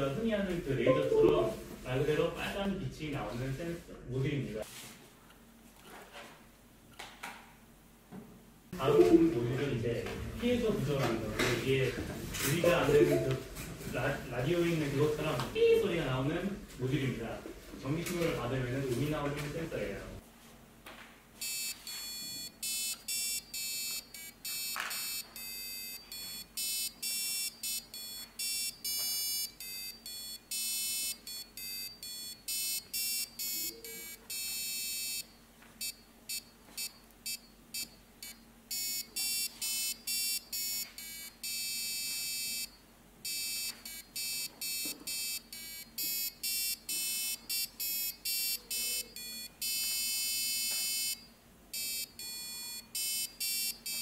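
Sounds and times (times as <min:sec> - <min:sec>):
high-pitched buzzer beeps: 0:21.4 - 0:54.0.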